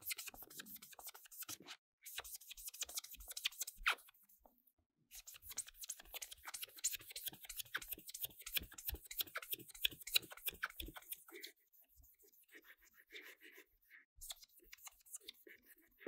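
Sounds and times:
scratchy rubbing on hard surface: 9.3 - 16.0.

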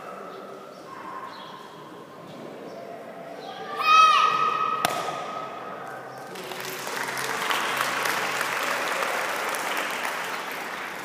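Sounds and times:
crowd applauding: 6.2 - 11.0.

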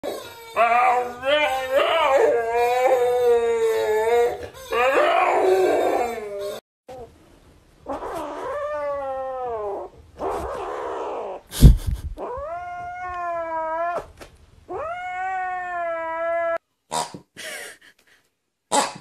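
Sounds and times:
kitten yowling: 14.7 - 16.6.

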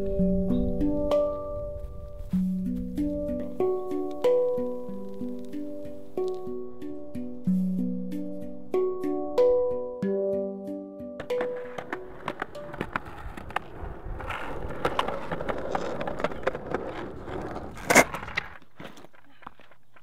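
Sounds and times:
skateboard wheels rolling on concrete: 0.0 - 6.7, 11.2 - 20.0
skateboard clacks over joints: 11.2 - 20.0
skateboard crash: 11.2 - 20.0.

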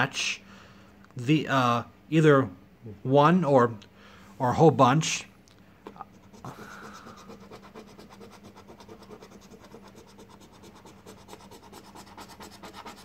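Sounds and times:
coin scratching a ticket: 6.2 - 13.0.

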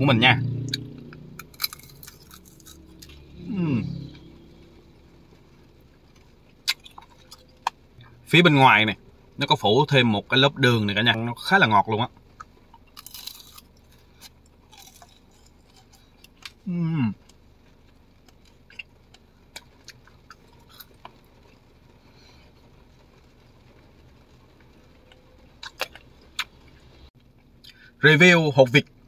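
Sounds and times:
candy crunching: 1.4 - 3.2, 12.8 - 16.6
person humming mm: 3.5 - 4.1.

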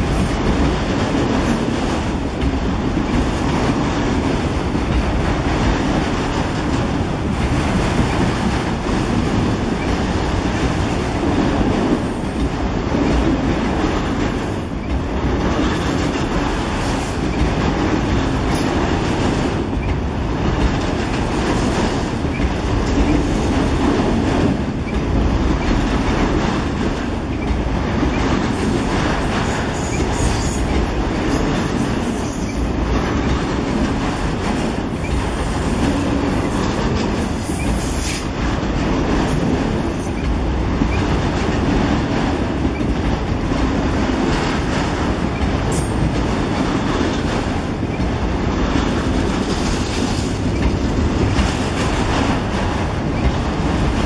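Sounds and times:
freight train rumbling past: 0.0 - 54.0
steel wheels clattering over rail joints: 0.0 - 54.0.

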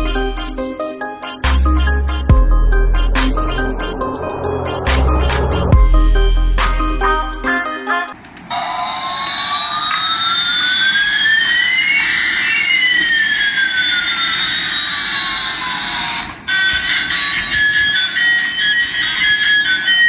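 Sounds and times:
steady electronic tones: 0.0 - 7.8.

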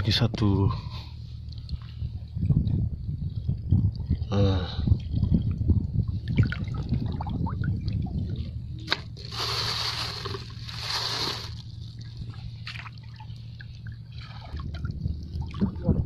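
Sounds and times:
seawater sloshing and trickling: 5.0 - 16.0.

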